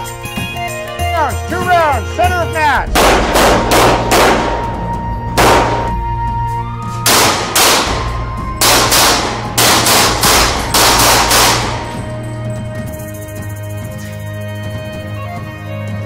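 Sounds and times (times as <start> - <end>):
pistol shots with echo: 2.9 - 6.2, 7.1 - 12.1.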